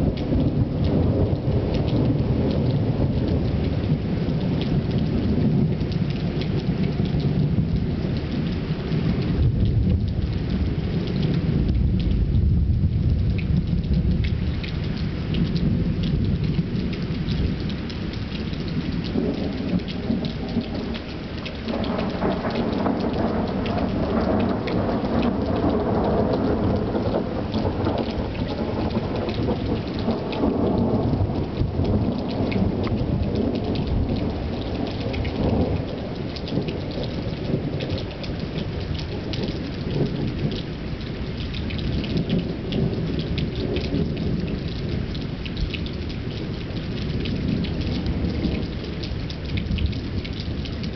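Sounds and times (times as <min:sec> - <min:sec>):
raindrops ticking: 0:00.0 - 0:50.9
steady rain: 0:00.0 - 0:50.9
thunder rolling: 0:21.6 - 0:40.5.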